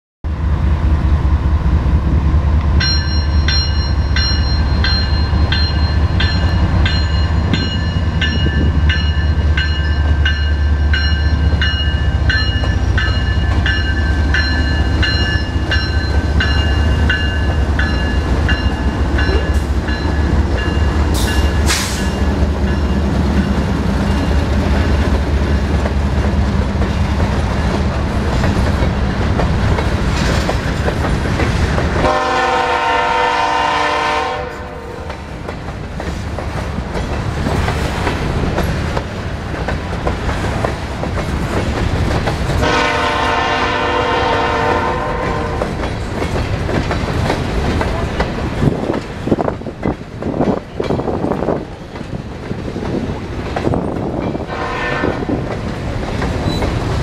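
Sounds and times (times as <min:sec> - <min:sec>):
diesel locomotives droning: 0:00.3 - 0:57.0
bell ringing: 0:02.8 - 0:21.6.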